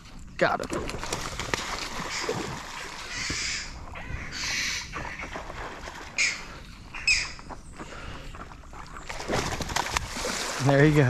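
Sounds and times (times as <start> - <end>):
fish splashing in water: 0.8 - 3.7, 8.7 - 11.0
loud bird calls: 1.9 - 8.4.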